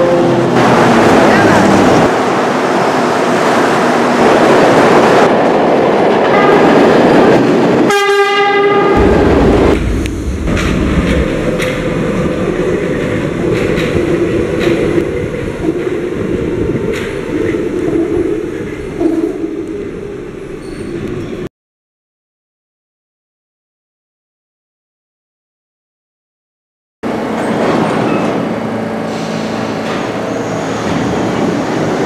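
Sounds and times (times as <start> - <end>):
train horn blast: 0.0 - 0.6, 6.3 - 6.8, 7.9 - 9.2
subway train running: 0.0 - 21.5, 27.0 - 32.0
wheels clicking over rail joints: 10.0 - 19.9.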